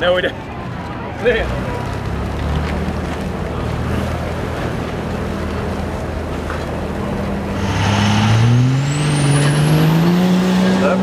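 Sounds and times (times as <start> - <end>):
truck engine under load: 1.7 - 11.0
high whine: 7.6 - 9.9.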